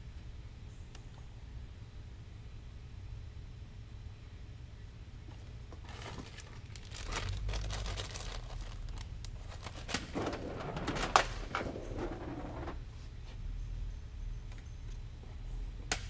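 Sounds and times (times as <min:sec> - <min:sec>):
crinkling and rustling: 0:05.3 - 0:12.8.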